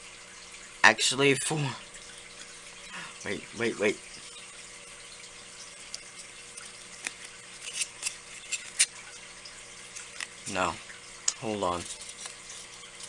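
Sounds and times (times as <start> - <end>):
faint steady hum: 0.0 - 13.0
scratchy clicks and scrapes: 5.9 - 9.2, 11.7 - 13.0.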